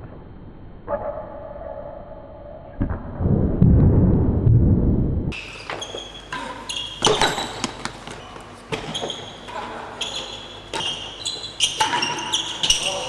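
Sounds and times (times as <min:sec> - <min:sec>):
shoes squeaking on court: 0:05.3 - 0:13.0.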